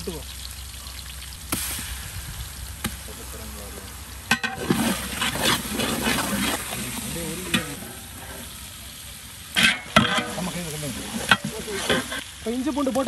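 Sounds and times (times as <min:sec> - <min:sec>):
onions sizzling in oil: 0:00.0 - 0:13.0
metal ladle scraping a pot: 0:04.3 - 0:06.8, 0:09.6 - 0:12.2.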